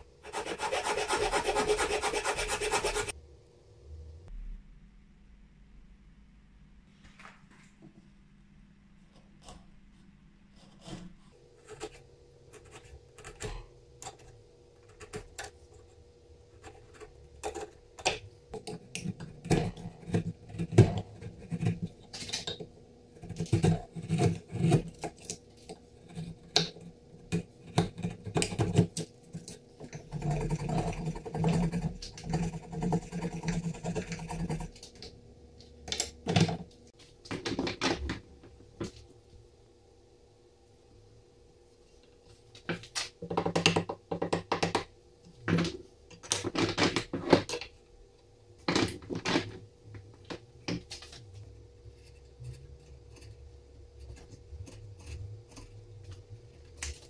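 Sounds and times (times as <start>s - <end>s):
chisel knocking and scraping wood: 16.6s - 35.1s.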